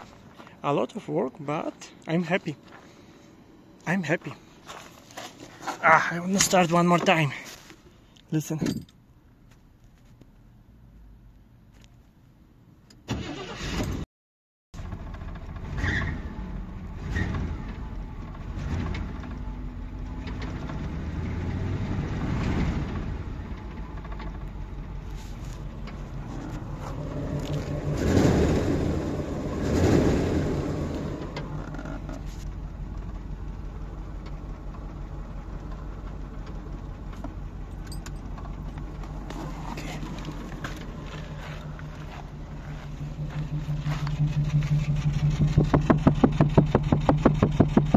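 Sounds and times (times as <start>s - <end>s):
starter cranking engine: 13.1s - 13.9s
car engine revving and idling: 14.8s - 47.9s.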